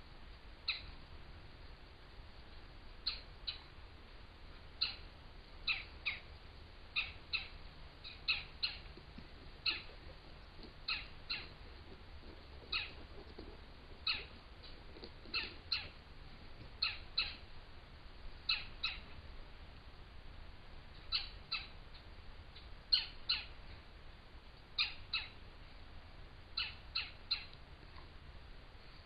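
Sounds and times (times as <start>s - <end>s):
low steady hum: 0.0s - 29.0s
high chirping calls: 0.7s - 0.9s, 3.0s - 3.7s, 4.8s - 6.3s, 6.9s - 9.0s, 9.6s - 11.6s, 12.2s - 13.0s, 14.0s - 14.4s, 15.2s - 16.0s, 16.8s - 17.5s, 18.4s - 19.2s, 21.0s - 23.5s, 24.8s - 25.4s, 26.6s - 27.6s.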